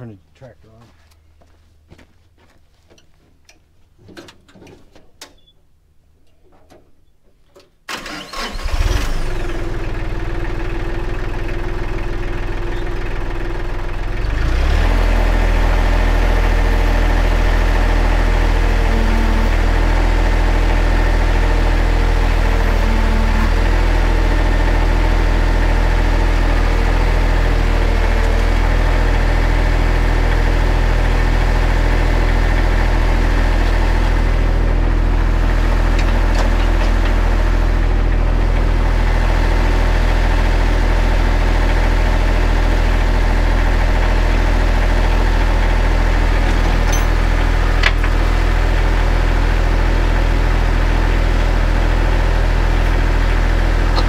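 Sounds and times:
tractor engine idling: 0:07.9 - 0:54.0.

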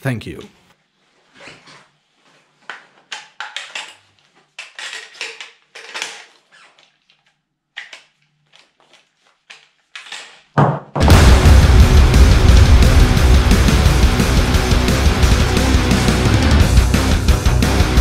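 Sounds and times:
clothing and gear rustling: 0:00.8 - 0:03.1, 0:08.2 - 0:10.5
loud knock: 0:10.6 - 0:14.5.

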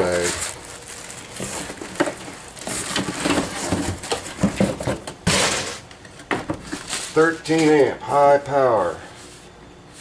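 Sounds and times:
cardboard rustling: 0:00.0 - 0:05.8
plastic packing bags crinkling: 0:00.0 - 0:05.9, 0:06.6 - 0:07.9.

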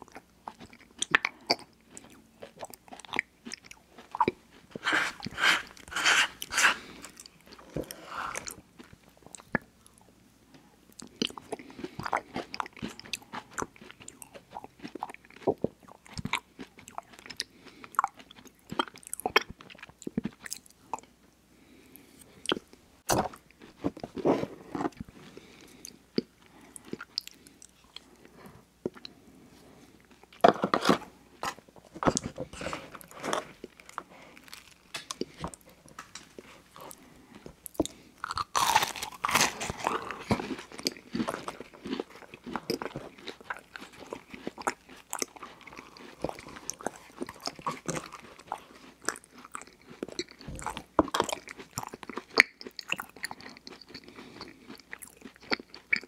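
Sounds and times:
scraping through ice cream cup: 0:04.8 - 0:07.1
crunchy bites and chewing: 0:30.1 - 0:56.0.

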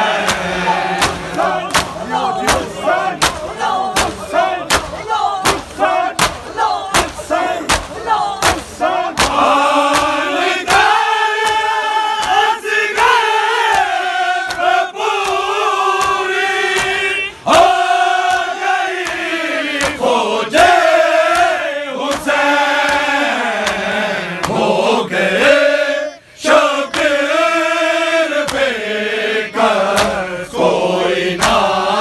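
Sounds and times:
group shouting: 0:00.0 - 0:20.0
men chanting in unison: 0:00.0 - 0:32.0
hands slapping bare chests: 0:00.2 - 0:17.0, 0:18.2 - 0:20.7, 0:21.3 - 0:24.7, 0:26.9 - 0:27.2, 0:28.4 - 0:28.7, 0:29.8 - 0:30.3, 0:31.4 - 0:31.8.

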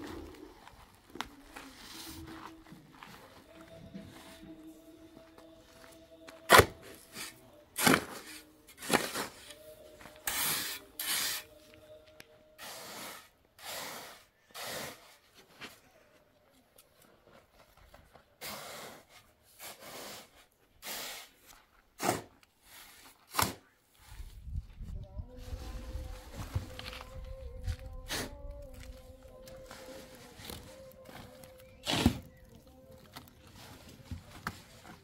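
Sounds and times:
shovel scraping sand: 0:06.5 - 0:09.6, 0:10.2 - 0:11.6, 0:12.6 - 0:15.2, 0:18.4 - 0:24.2, 0:29.7 - 0:32.6.

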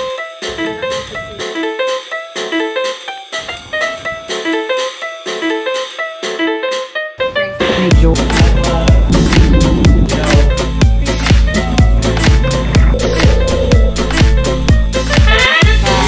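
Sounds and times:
upbeat instrumental music: 0:00.0 - 0:16.0
music with heavy bass: 0:08.0 - 0:16.0.

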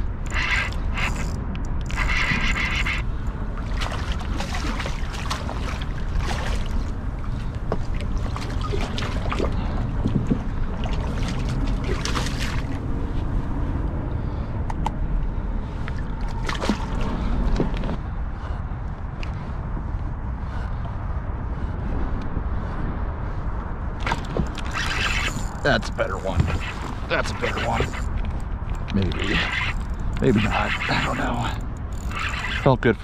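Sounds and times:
wind and water rumble: 0:00.0 - 0:33.0
fishing reel cranking: 0:00.2 - 0:03.2, 0:24.1 - 0:32.7.

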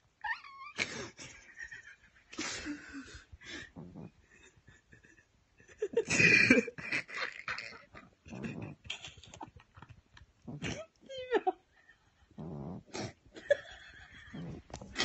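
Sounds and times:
breathy wheezing laughter: 0:00.8 - 0:09.6.

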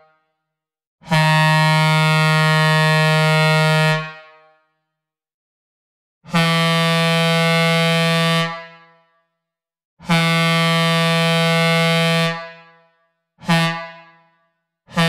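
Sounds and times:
train air horn blasts: 0:06.3 - 0:08.7, 0:10.0 - 0:12.6, 0:13.4 - 0:14.2.

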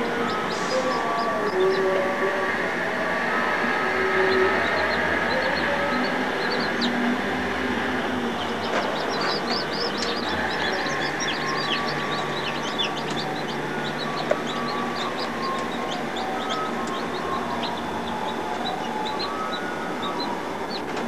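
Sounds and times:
chicks peeping: 0:00.0 - 0:21.0
steady mechanical hum: 0:00.0 - 0:21.0.

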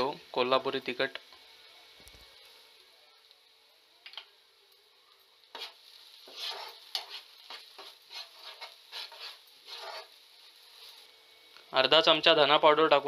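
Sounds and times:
spoon scraping frying pan: 0:05.5 - 0:10.2.

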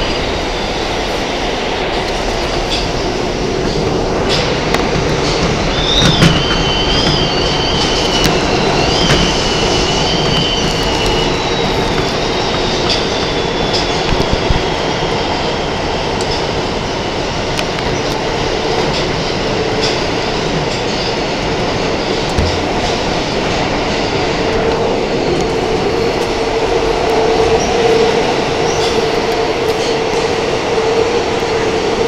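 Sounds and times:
train wheels rumbling on rails: 0:00.0 - 0:32.0
wheels squealing: 0:03.8 - 0:16.0.

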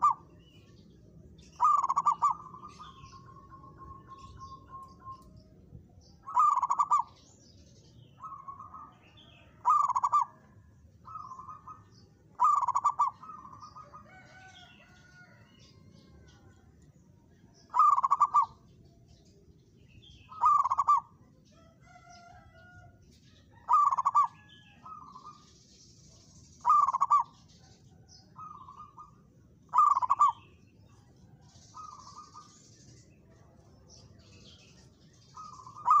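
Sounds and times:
dove cooing: 0:00.0 - 0:00.4, 0:01.4 - 0:05.3, 0:06.2 - 0:07.2, 0:08.2 - 0:16.5, 0:17.7 - 0:18.6, 0:20.3 - 0:21.2, 0:23.5 - 0:25.4, 0:26.6 - 0:30.6, 0:35.4 - 0:36.0.

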